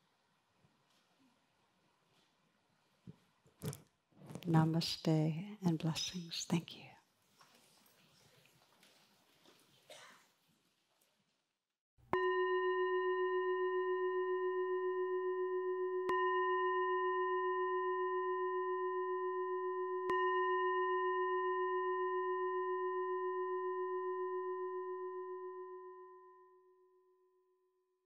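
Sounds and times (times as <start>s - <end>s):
singing bowl ringing: 12.2s - 27.5s.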